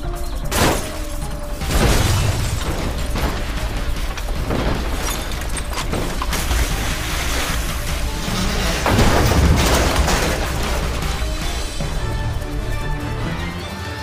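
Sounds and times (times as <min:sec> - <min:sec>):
dramatic music: 0:00.0 - 0:14.0
car crash impact: 0:01.6 - 0:11.2.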